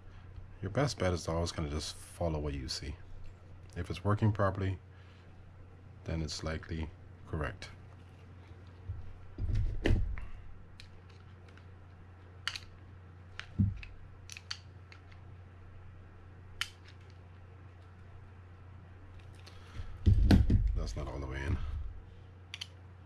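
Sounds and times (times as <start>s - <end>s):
small metal parts clicking: 13.4s - 15.2s
knock: 20.0s - 20.7s.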